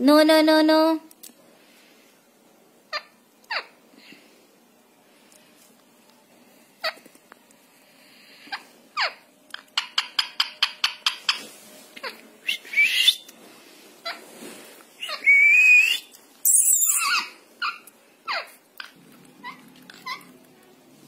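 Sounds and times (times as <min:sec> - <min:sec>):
parrot squawks: 0:02.9 - 0:03.8, 0:08.5 - 0:11.4, 0:15.0 - 0:20.3
parrot rising whistle: 0:12.4 - 0:13.2, 0:15.0 - 0:17.3.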